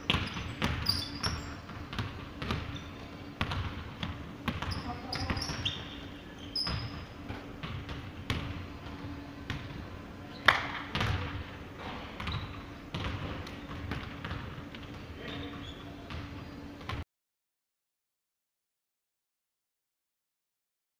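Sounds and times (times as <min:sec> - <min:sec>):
sneaker squeaks: 0:00.0 - 0:09.7, 0:10.3 - 0:17.0
steady low hum: 0:00.0 - 0:17.0
basketball dribbling on hardwood: 0:00.1 - 0:02.7, 0:03.4 - 0:05.7, 0:10.9 - 0:11.3, 0:12.2 - 0:14.5.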